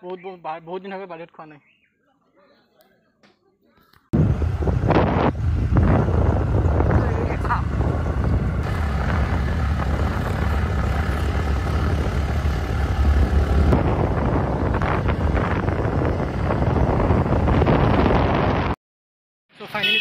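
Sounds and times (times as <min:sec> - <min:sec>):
motorcycle engine running: 0:04.2 - 0:18.7
road noise: 0:04.2 - 0:18.8, 0:19.5 - 0:20.0
wind buffeting microphone: 0:04.2 - 0:18.8.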